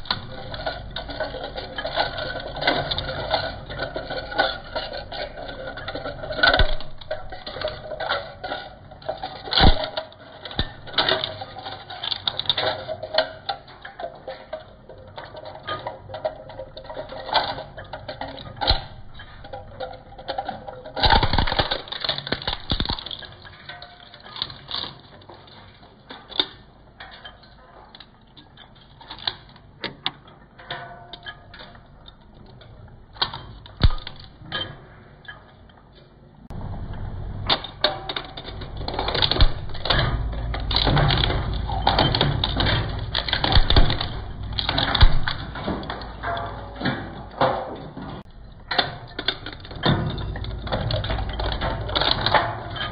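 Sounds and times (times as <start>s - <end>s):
shredder crunching hard plastic: 9.5s - 12.5s, 21.0s - 23.3s, 33.8s - 34.3s, 38.9s - 45.8s.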